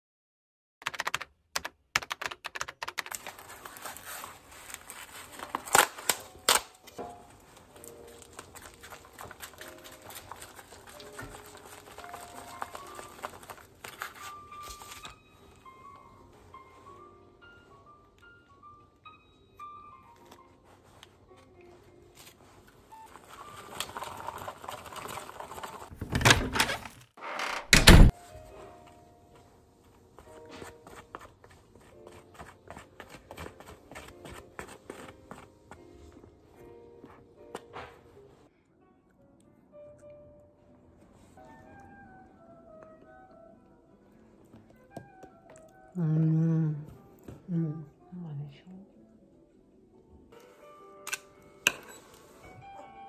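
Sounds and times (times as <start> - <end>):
keyboard typing clicks: 0.8 - 3.1
plastic pack crinkling: 3.0 - 7.0, 7.7 - 15.2, 22.9 - 26.0
chopsticks stirring sticky food: 7.4 - 15.0, 22.2 - 25.9.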